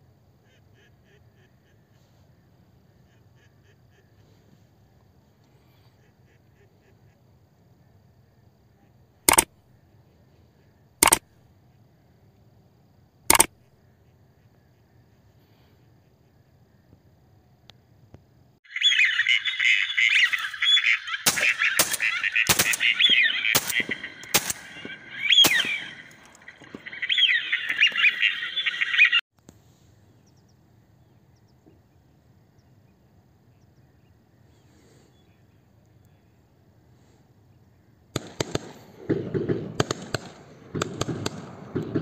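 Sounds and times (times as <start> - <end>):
sharp cracks: 9.3 - 9.5, 11.0 - 11.2, 13.3 - 13.5, 21.2 - 27.0, 38.2 - 42.0
ducks calling: 18.7 - 29.2.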